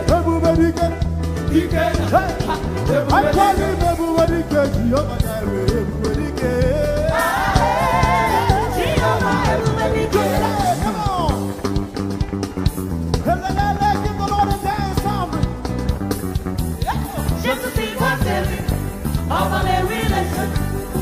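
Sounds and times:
person singing: 0.0 - 11.6
band playing steady beat: 0.0 - 21.0.

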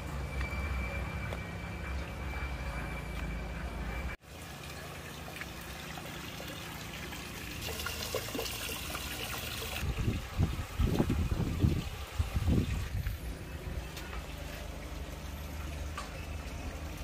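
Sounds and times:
thin steady high tone: 0.0 - 4.9
water pouring into pond: 4.2 - 13.2.

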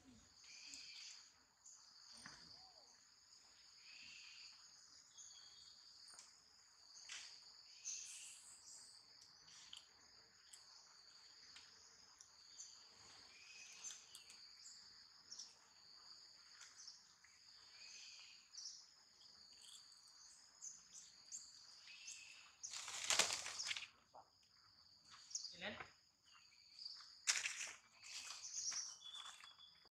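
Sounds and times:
insect chorus buzzing: 0.0 - 29.8
bird chirps: 27.9 - 29.9.

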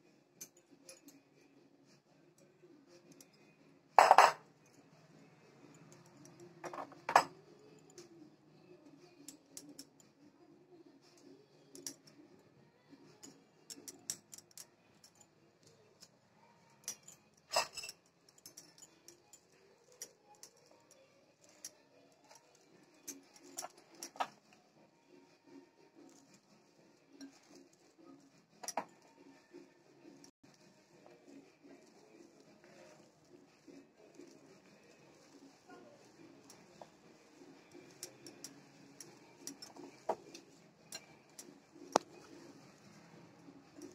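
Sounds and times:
glassware clinking: 4.0 - 4.5, 6.6 - 7.5, 16.8 - 19.2, 28.6 - 29.0.

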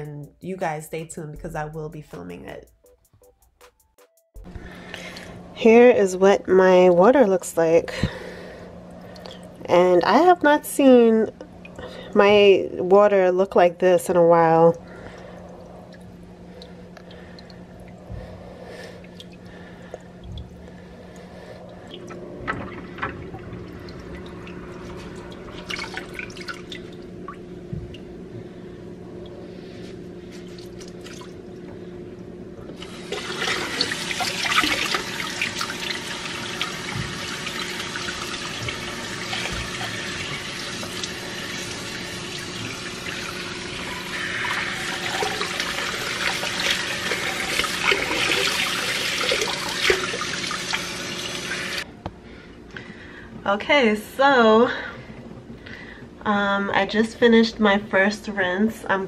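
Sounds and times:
water dripping into sink: 8.9 - 10.2, 14.7 - 18.3, 19.0 - 28.1
kitchen faucet running: 32.7 - 51.8.

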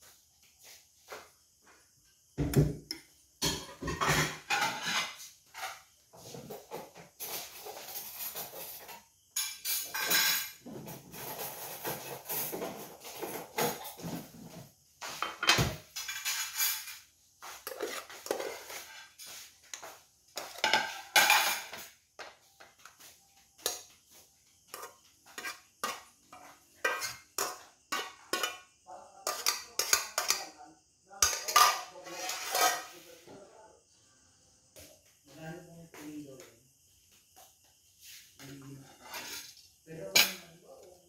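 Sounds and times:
metal spoon scraping a pot: 3.7 - 14.2, 16.0 - 21.8, 24.7 - 30.4, 31.2 - 33.1, 38.4 - 40.5.

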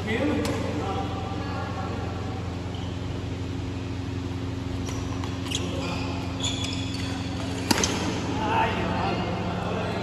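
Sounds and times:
steady low hum: 0.0 - 10.0
shoes squeaking on court floor: 2.6 - 8.2
racket striking shuttlecock: 7.4 - 8.2.

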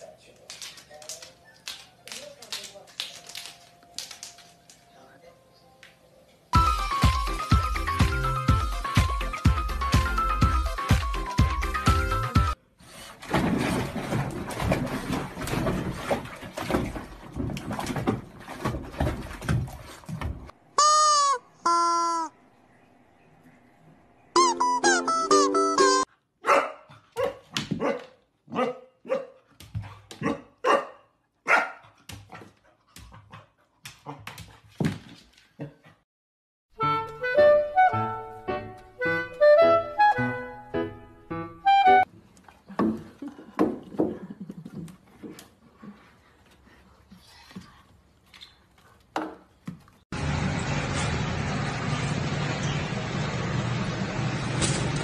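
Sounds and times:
dog barking: 26.4 - 29.4, 30.2 - 32.0.

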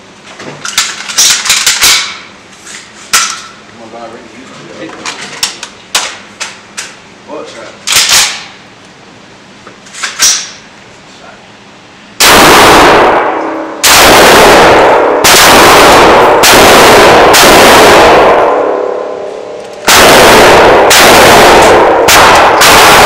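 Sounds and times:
gunshots echoing indoors: 12.2 - 23.0.

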